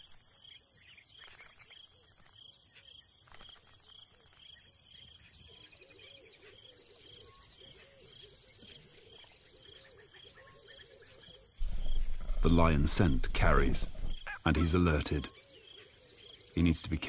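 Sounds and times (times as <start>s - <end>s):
low call repeated rapidly: 11.6s - 15.3s.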